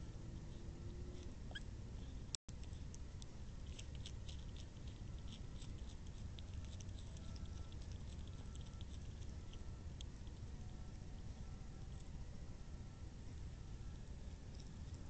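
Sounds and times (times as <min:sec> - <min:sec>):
low camera noise rumble: 0:00.0 - 0:15.0
small clicks and crackles: 0:02.5 - 0:10.5.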